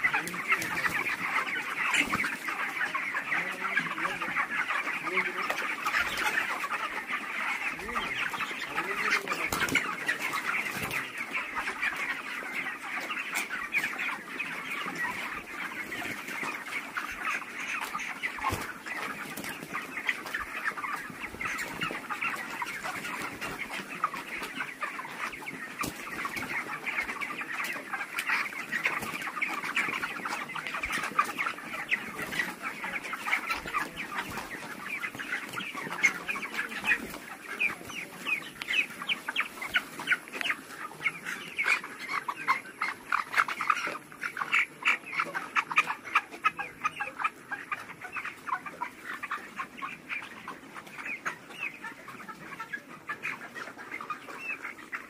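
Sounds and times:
chickens clucking: 0.0s - 55.0s.

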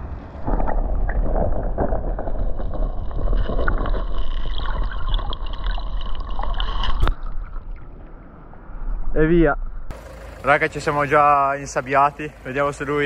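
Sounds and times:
water gurgling: 0.0s - 8.3s
muffled underwater rumble: 0.0s - 9.9s.

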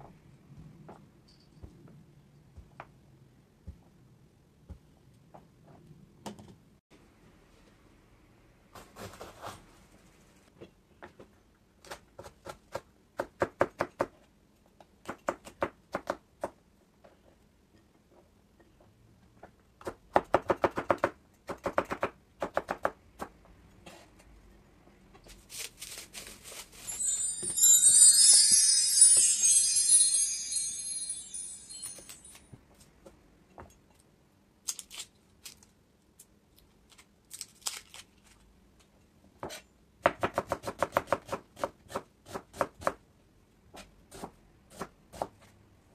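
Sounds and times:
high chime-like music: 26.9s - 32.4s.

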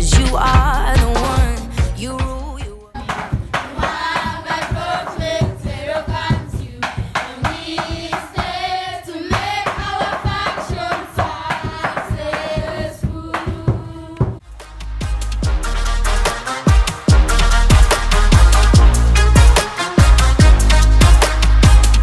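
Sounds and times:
rhythmic hand clapping: 3.0s - 14.8s, 16.2s - 22.0s
children singing in chorus: 3.5s - 14.2s.

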